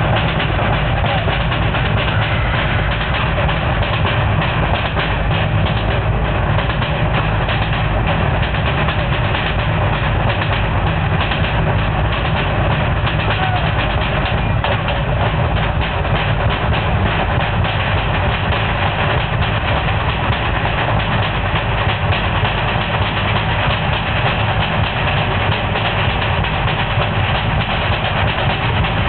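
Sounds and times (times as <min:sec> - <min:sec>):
fast steady drumming: 0:00.0 - 0:29.0
heavy low rumble: 0:00.0 - 0:29.0.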